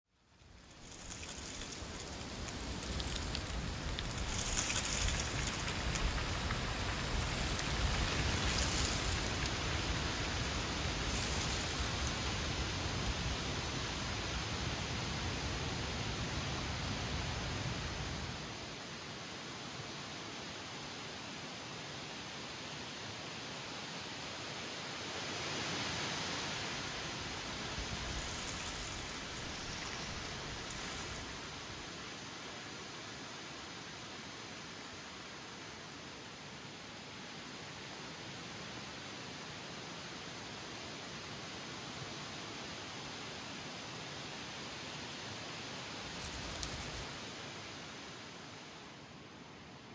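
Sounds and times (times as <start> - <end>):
wind blowing through trees: 0.1 - 49.9
dry leaves rustling: 0.4 - 12.6, 26.8 - 31.9, 46.0 - 47.4.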